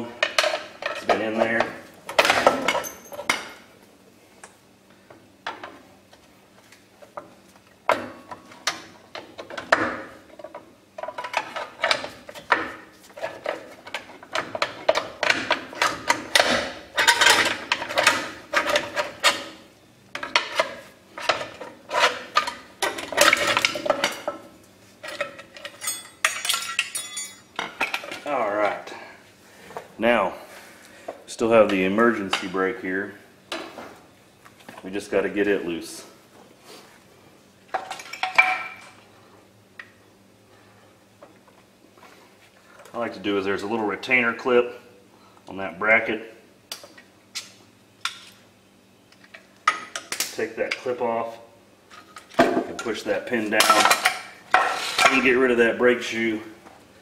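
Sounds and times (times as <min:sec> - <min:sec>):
metal parts clinking and scraping: 0:15.8 - 0:19.5, 0:25.0 - 0:28.1.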